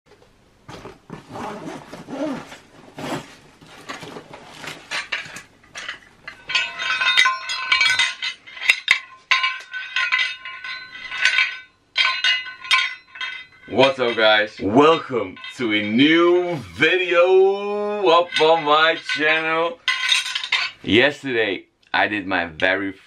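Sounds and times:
hands rummaging in a backpack: 0:00.7 - 0:13.4
metal medals clinking: 0:04.9 - 0:20.9.

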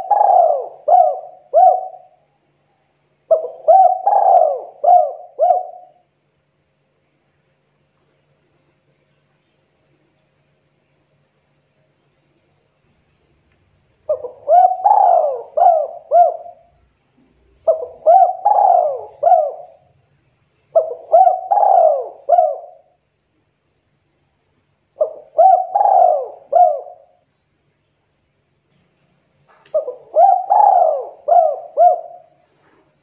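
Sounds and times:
dove cooing: 0:00.0 - 0:02.2, 0:03.3 - 0:06.0, 0:14.1 - 0:20.0, 0:20.7 - 0:23.0, 0:25.0 - 0:27.2, 0:29.7 - 0:33.0.

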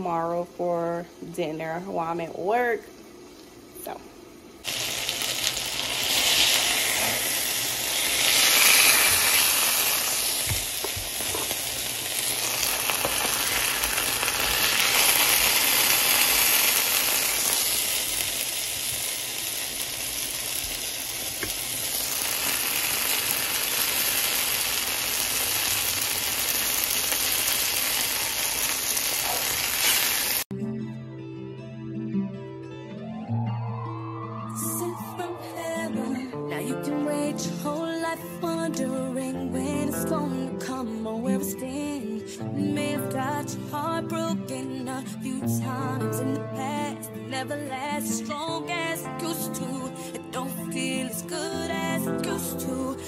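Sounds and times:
food sizzling in hot oil: 0:04.6 - 0:30.5.

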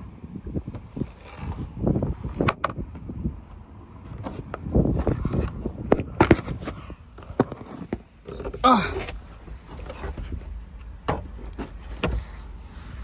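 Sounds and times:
gusting wind buffeting microphone: 0:00.0 - 0:07.2.

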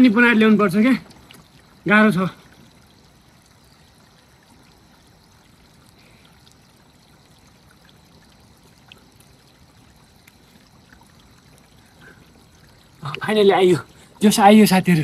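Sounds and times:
water trickling over rocks: 0:00.0 - 0:15.0.

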